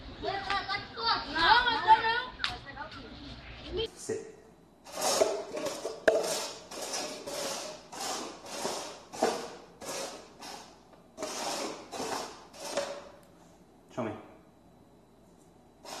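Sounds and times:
plastic cups scraping on wooden floor: 0:04.8 - 0:13.2, 0:15.8 - 0:16.0.

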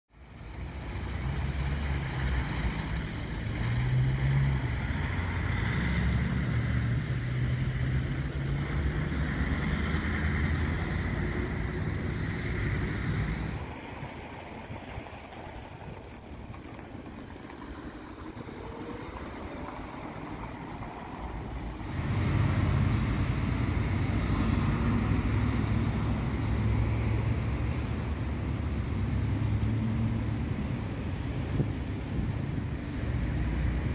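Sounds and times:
road vehicles rumbling: 0:00.1 - 0:33.9
wind on microphone: 0:09.1 - 0:29.4, 0:30.0 - 0:33.9.

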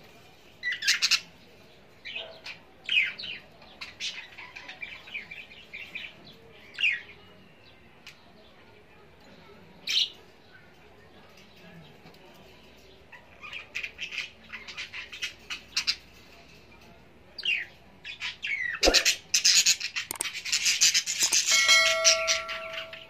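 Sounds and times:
glass pot lid ringing: 0:21.4 - 0:23.0.

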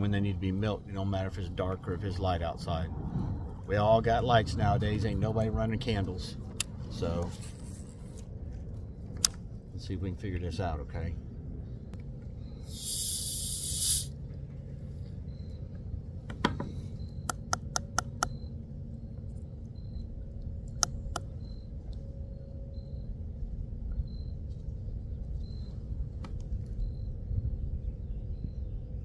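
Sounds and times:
low outdoor rumble: 0:00.0 - 0:29.0
brief hiss: 0:12.6 - 0:14.2
faint high chirp: 0:15.0 - 0:16.0, 0:16.6 - 0:26.0, 0:26.7 - 0:29.0.

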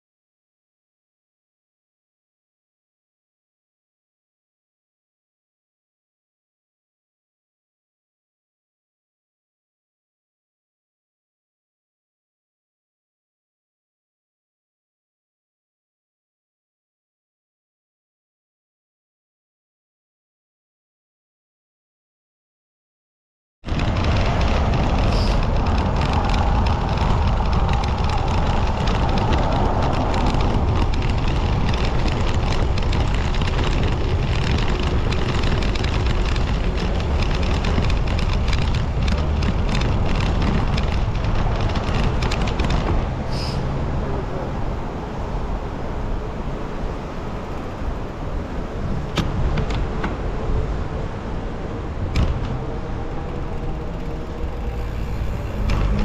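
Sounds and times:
rattle over cobblestones: 0:23.6 - 0:44.4, 0:47.2 - 0:56.0
rolling road noise: 0:23.6 - 0:56.0
wind rumble: 0:23.6 - 0:56.0.

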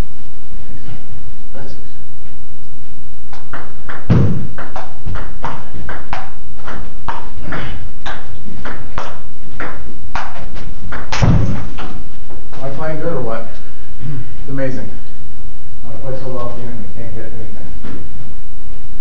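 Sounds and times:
heavier dull thumps: 0:03.4 - 0:12.7.

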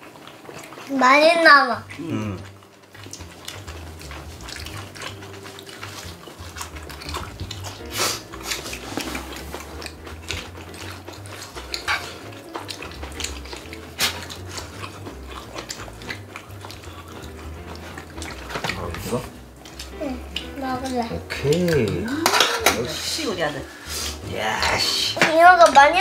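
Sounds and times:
utensils clinking and scraping: 0:03.6 - 0:24.2.

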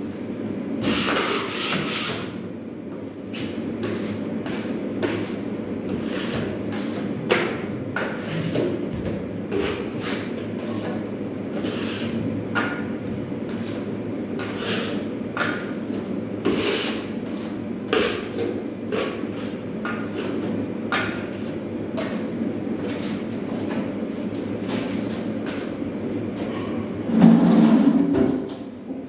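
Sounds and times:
knife scraping drywall: 0:00.8 - 0:02.3, 0:03.4 - 0:08.7, 0:09.5 - 0:12.2, 0:13.5 - 0:15.6, 0:16.4 - 0:18.2.

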